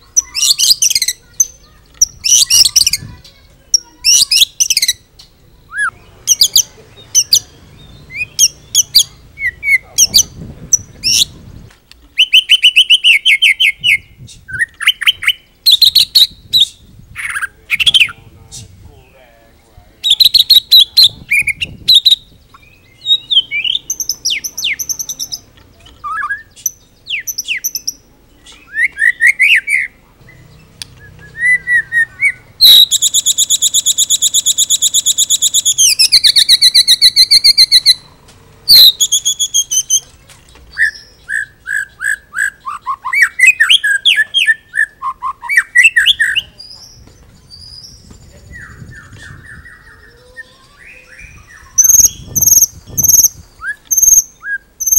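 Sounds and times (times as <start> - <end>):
bird singing varied song: 0.0 - 54.9.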